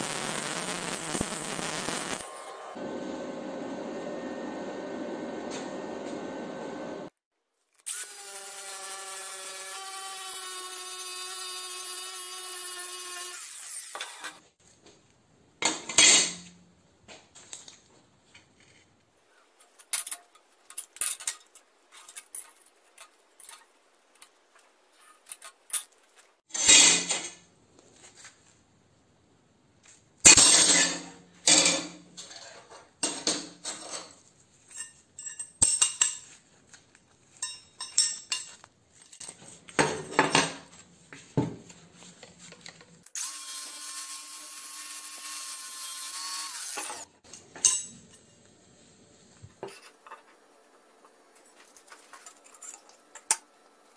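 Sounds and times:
power tools on steel plate: 43.1 - 47.9.

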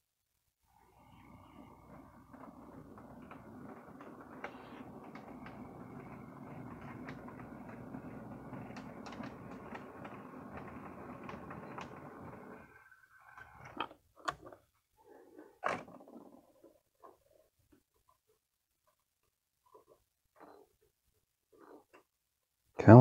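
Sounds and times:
model train running on track: 1.0 - 13.6.

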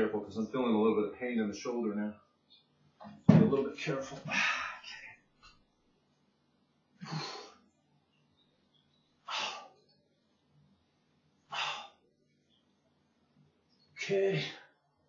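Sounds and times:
man breathing out hard: 9.3 - 9.8, 11.5 - 12.0.

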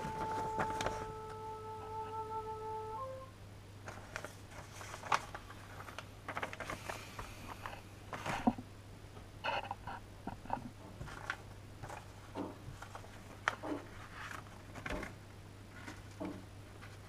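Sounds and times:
paper rustling and crinkling: 0.0 - 1.3, 3.8 - 8.5, 11.0 - 17.0
plastic bag rustling: 0.0 - 1.3, 3.8 - 8.5
steady held tone: 0.0 - 3.4.

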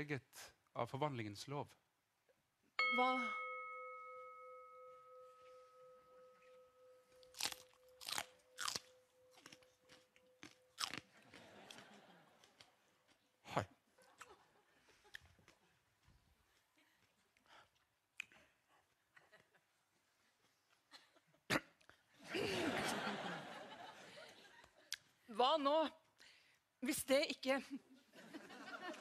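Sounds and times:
bell ringing: 2.8 - 10.9
crunching and chewing peppers: 7.2 - 11.8, 12.4 - 13.2.

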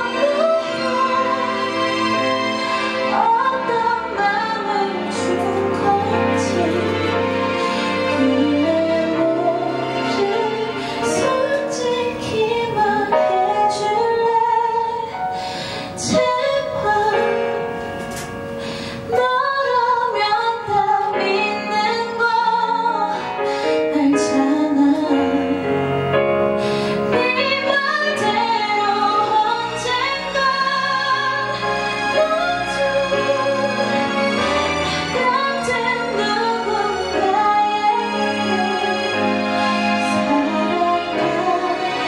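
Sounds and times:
woman singing: 0.0 - 2.2, 2.8 - 15.2, 16.0 - 17.8, 19.1 - 25.8, 27.0 - 42.0
instrumental accompaniment: 0.0 - 42.0.

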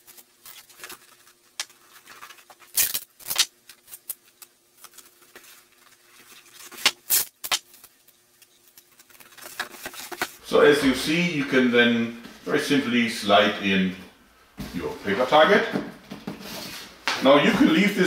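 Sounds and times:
duct tape ripping: 0.0 - 5.0, 6.5 - 10.3.

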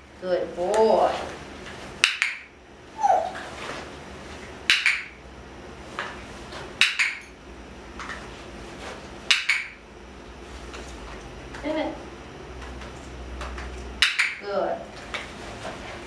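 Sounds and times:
sharp doubled clicks: 4.7 - 5.2, 6.8 - 7.3, 9.3 - 9.8, 14.0 - 14.4.

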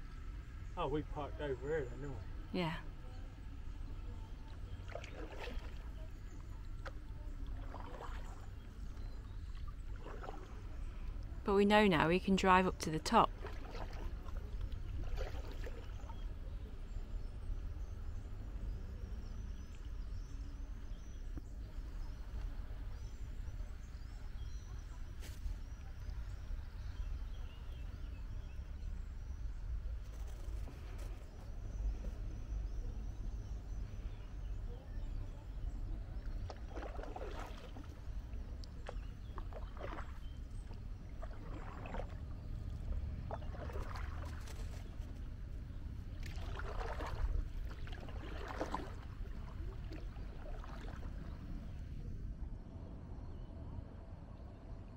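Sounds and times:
paddle splashing in water: 4.5 - 11.2, 13.2 - 16.4, 35.0 - 45.2, 46.1 - 51.8
steady low rumble: 5.7 - 54.9.

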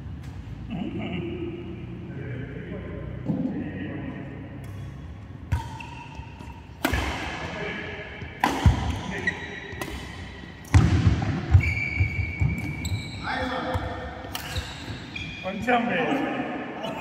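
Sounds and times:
racket hitting shuttlecock: 4.5 - 11.7, 13.7 - 15.1
shoes squeaking on court: 4.7 - 6.8, 8.2 - 10.8, 11.4 - 15.6.

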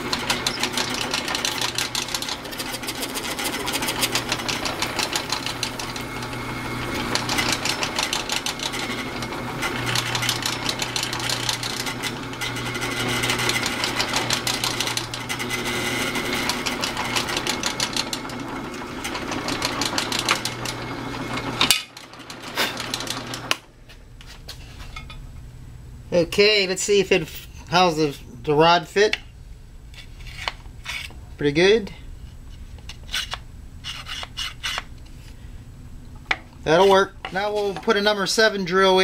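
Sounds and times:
drill press boring plastic: 0.0 - 23.7, 36.3 - 39.0.

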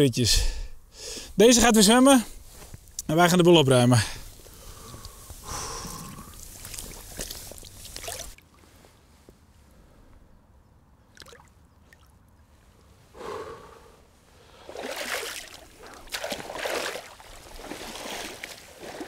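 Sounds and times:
water sloshing and splashing: 6.0 - 8.7, 14.6 - 19.0.

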